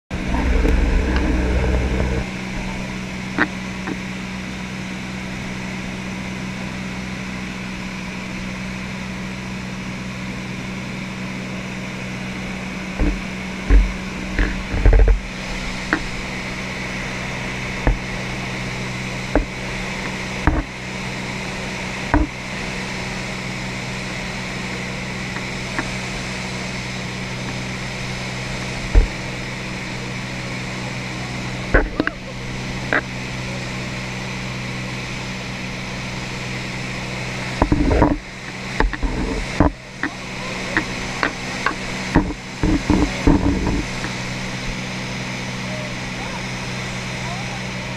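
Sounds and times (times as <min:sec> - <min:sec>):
light aircraft engine droning: 0:00.1 - 0:47.9.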